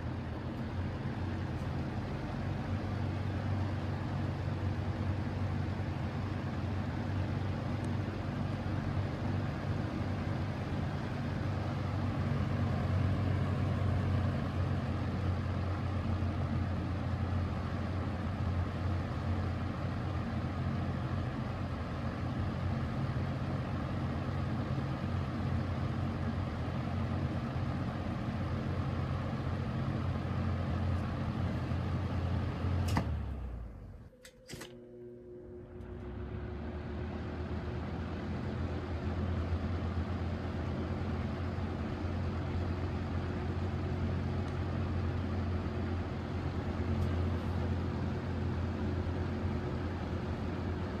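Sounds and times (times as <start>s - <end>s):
fan motor humming: 0.0s - 51.0s
fan switch click: 32.8s - 33.2s, 34.1s - 34.8s.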